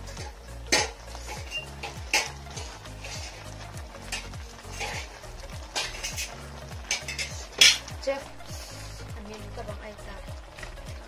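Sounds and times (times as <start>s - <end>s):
background music with beat: 0.0s - 11.0s
noodles simmering hiss: 0.0s - 11.0s
metal spoon scraping pan: 0.7s - 7.9s.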